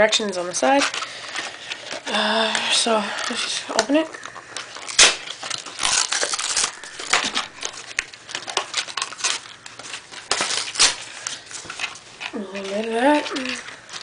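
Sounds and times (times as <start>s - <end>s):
paperboard box being torn open: 4.8s - 11.1s.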